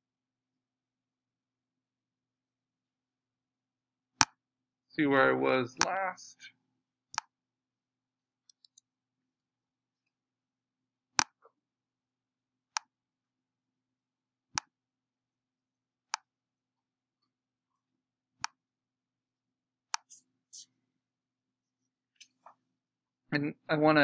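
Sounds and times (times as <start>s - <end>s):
computer mouse clicking: 8.5s - 8.8s.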